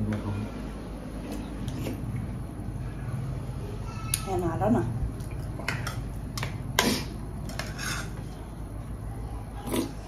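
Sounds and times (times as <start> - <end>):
utensils clinking on dishes: 5.3 - 8.4.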